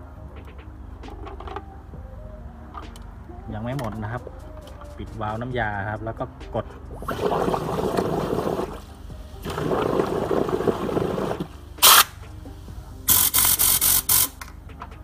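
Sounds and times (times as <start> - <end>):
compressed air bubbling in water: 6.9 - 11.5
sharp air blasts hissing: 11.1 - 14.4.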